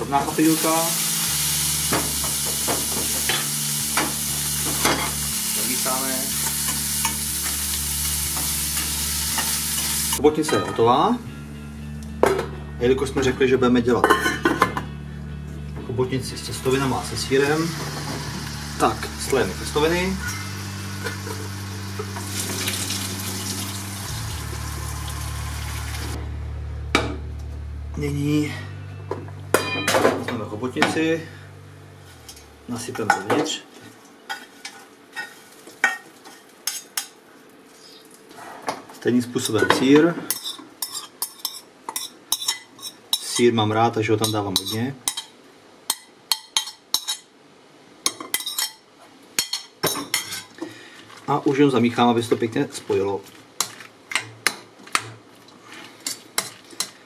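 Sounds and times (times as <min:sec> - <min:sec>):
steady low hum: 0:14.3 - 0:33.0.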